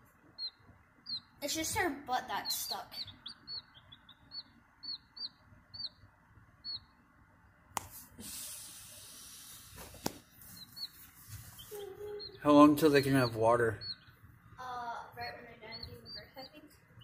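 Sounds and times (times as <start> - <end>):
chick peeping: 0.2 - 7.1, 9.8 - 17.0
rustling: 9.7 - 12.2.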